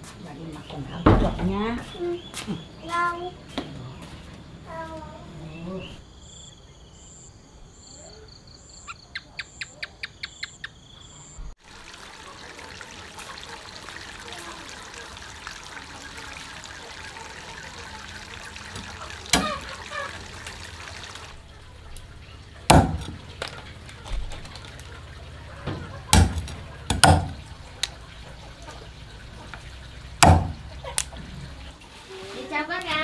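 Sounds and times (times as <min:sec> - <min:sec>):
insects chirping: 0:00.5 - 0:31.8
trickle of running water: 0:11.6 - 0:33.0
sharp knocks: 0:22.7 - 0:23.2, 0:25.7 - 0:27.4, 0:30.2 - 0:30.7.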